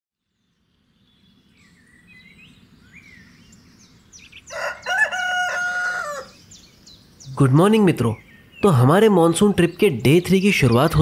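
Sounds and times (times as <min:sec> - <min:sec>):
small birds chirping: 0:00.2 - 0:11.0
rooster crowing: 0:04.4 - 0:06.4.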